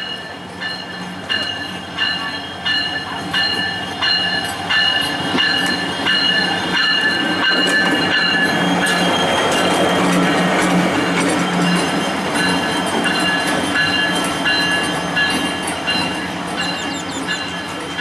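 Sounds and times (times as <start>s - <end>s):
locomotive wheels squealing: 1.4s - 18.0s.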